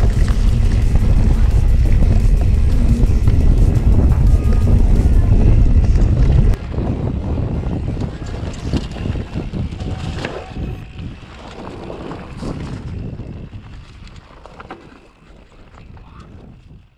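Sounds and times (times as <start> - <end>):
wind on microphone: 0.0 - 14.7, 15.6 - 16.9
bike rattling over bumps: 0.0 - 16.9
bike tyres rolling over leaves: 0.0 - 16.9.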